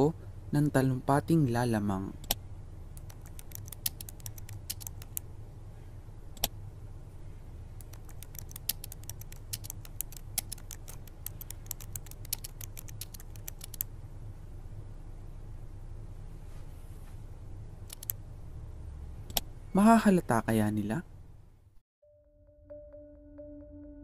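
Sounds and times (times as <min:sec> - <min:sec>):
faint low hum: 0:00.0 - 0:24.0
laptop keyboard typing: 0:03.0 - 0:05.2, 0:07.8 - 0:13.9, 0:17.9 - 0:18.2.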